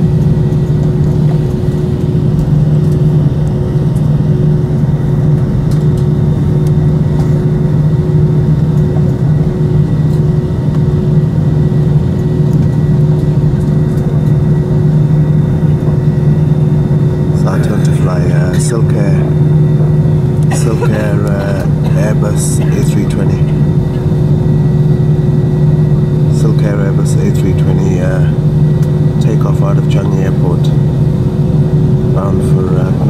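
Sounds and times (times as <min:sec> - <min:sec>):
jet engine and airflow noise: 0:00.0 - 0:33.0
low drone: 0:00.0 - 0:33.0
steady hum: 0:00.0 - 0:33.0.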